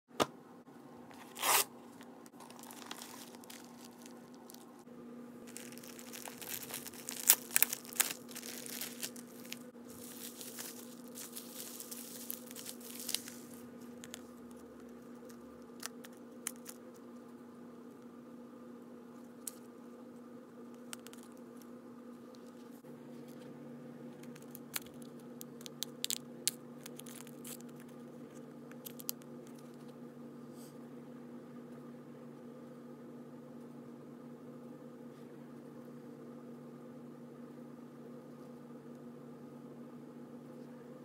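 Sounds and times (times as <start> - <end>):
faint low hum: 0.2 - 41.0
paper mailer ripping open: 1.2 - 1.7, 2.4 - 4.6, 5.5 - 13.6
bubble wrap crinkling: 2.3 - 4.8, 5.4 - 16.8, 24.2 - 29.8.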